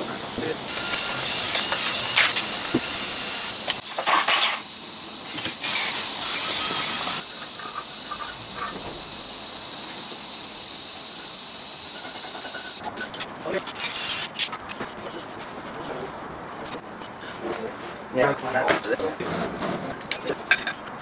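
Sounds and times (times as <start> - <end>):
steady workshop hiss: 0.0 - 14.4.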